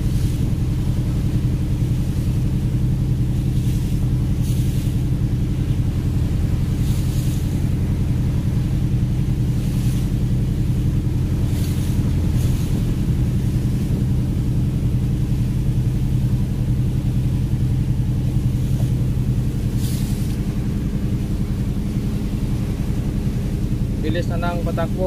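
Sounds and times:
boat diesel engine droning: 0:00.0 - 0:25.0
short hisses: 0:19.7 - 0:20.4.

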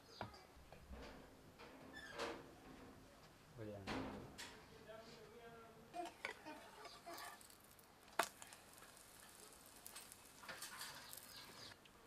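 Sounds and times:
faint frying hiss: 0:04.5 - 0:12.0.

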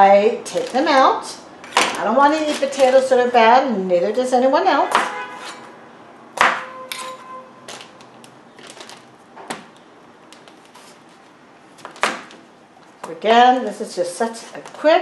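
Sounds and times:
short ringing tone: 0:06.6 - 0:07.6.

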